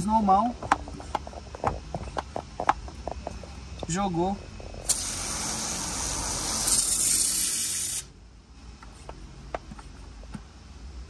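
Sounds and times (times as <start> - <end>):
foam sprayer hissing: 4.8 - 8.1.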